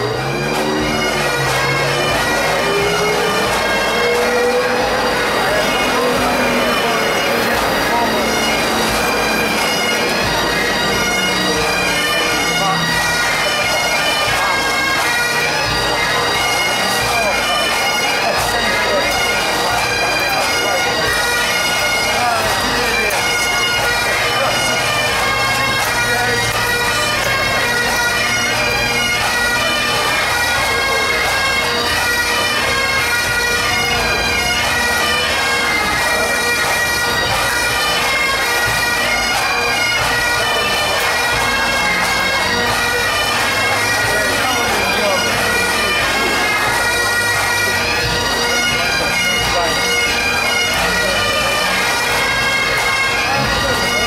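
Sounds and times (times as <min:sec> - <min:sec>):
bagpipes playing a tune: 0:00.0 - 0:54.0.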